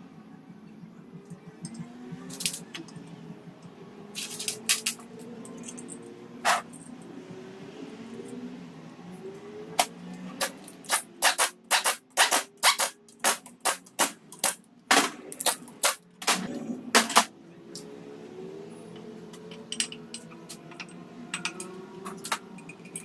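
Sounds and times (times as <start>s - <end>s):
pneumatic wrench bursts: 10.8s - 13.9s.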